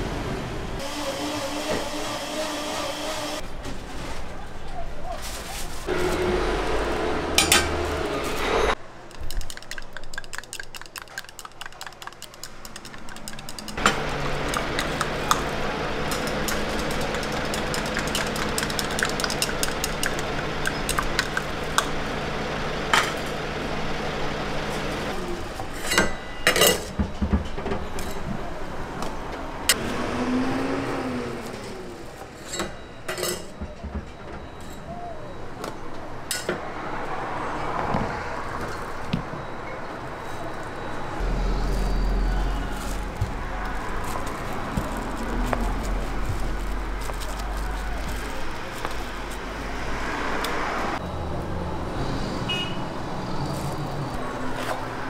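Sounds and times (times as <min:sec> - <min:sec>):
metal clinking on griddle: 0:07.4 - 0:07.8, 0:10.2 - 0:21.2
eggs sizzling: 0:09.1 - 0:21.9
low hum: 0:40.9 - 0:50.2.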